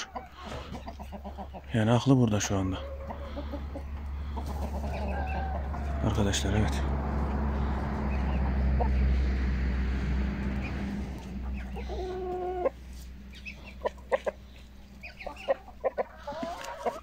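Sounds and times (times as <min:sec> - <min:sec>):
chickens clucking: 0:00.0 - 0:17.0
low rumble: 0:03.0 - 0:15.2.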